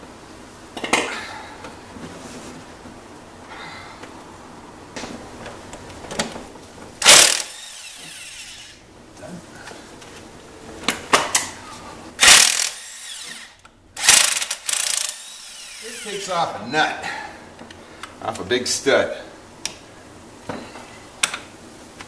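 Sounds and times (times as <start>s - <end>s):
ratchet clicks: 7.0s - 7.7s, 12.2s - 16.1s
power ratchet running: 7.0s - 8.8s, 12.2s - 16.3s.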